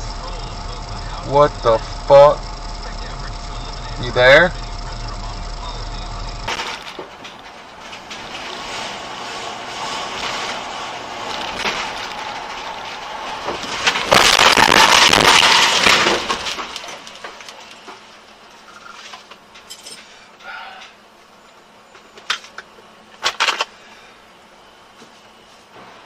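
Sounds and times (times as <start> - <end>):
loud car crash: 0.0 - 18.3
car running on road: 0.0 - 19.6.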